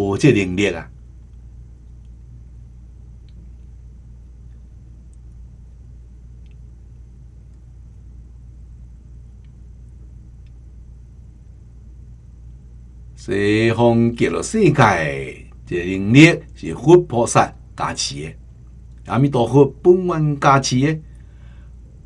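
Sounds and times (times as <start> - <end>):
low electrical hum with hiss: 0.0 - 22.0
faint ticks: 3.2 - 5.4, 6.4 - 7.7, 9.3 - 10.6.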